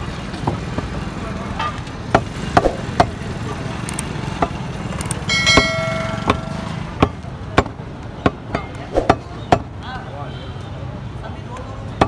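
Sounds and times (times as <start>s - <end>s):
low street noise: 0.0s - 12.0s
ringing tone: 5.3s - 6.9s.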